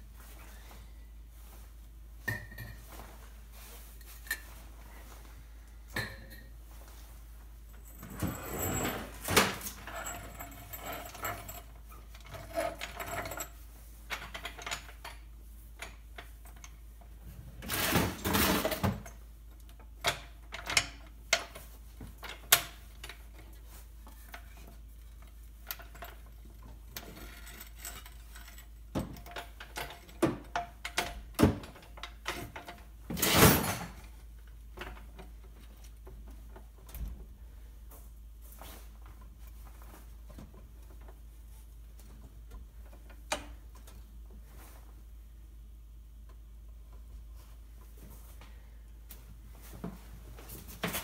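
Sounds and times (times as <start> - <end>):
tools clanking and knocking: 7.8 - 16.8, 20.0 - 37.2.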